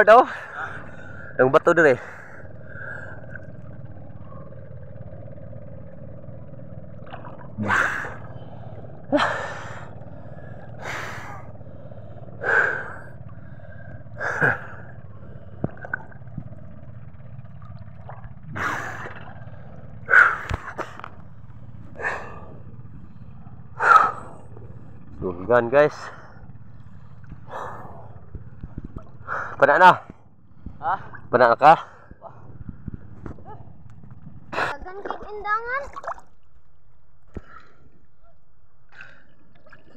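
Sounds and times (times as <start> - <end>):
diver breathing hard: 0.3 - 1.4, 2.0 - 4.0, 7.6 - 16.5, 18.5 - 25.2, 25.9 - 30.8.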